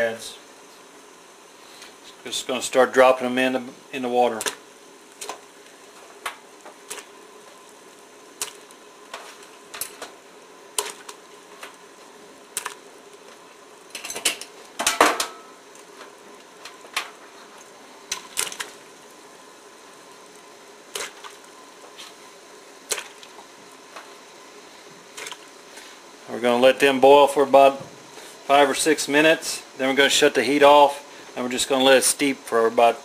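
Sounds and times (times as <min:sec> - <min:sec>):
faint steady hum: 0:00.0 - 0:33.0
crawfish clicking in pot: 0:04.4 - 0:04.6, 0:08.4 - 0:11.8, 0:12.5 - 0:12.9.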